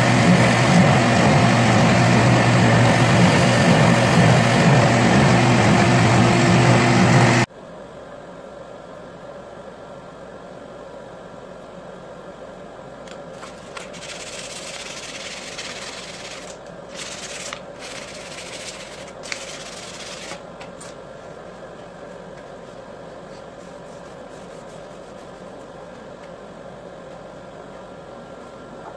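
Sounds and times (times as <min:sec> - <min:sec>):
motor hum: 0:00.0 - 0:07.5
cloth rubbing on wooden handle: 0:13.4 - 0:20.4, 0:21.2 - 0:26.3.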